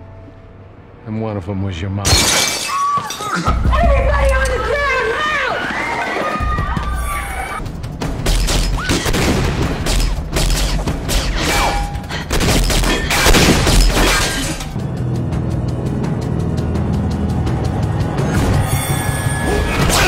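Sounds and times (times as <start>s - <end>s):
low background music: 0.0s - 2.6s, 3.2s - 20.0s
window glass breaking: 2.1s - 3.3s.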